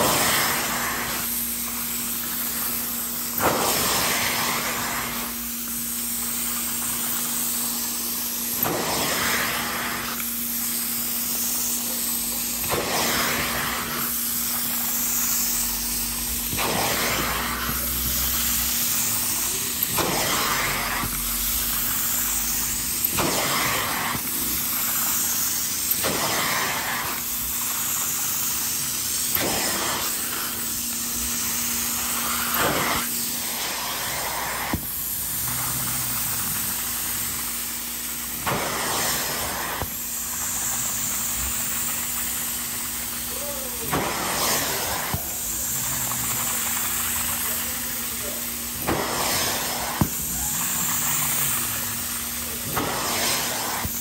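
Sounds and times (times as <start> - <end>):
steady machine hum: 0.0 - 38.5
suction hissing through hand tool: 0.0 - 54.0.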